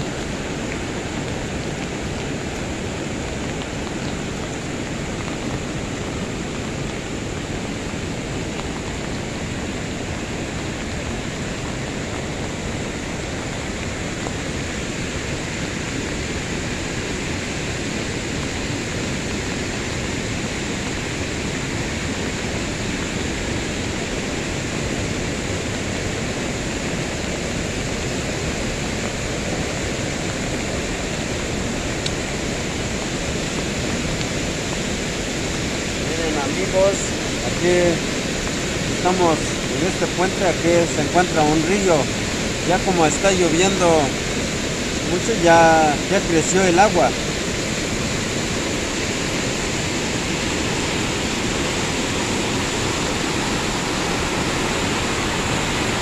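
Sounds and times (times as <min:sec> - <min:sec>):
heavy rain: 0:00.0 - 0:56.0
swollen river rushing: 0:00.0 - 0:56.0.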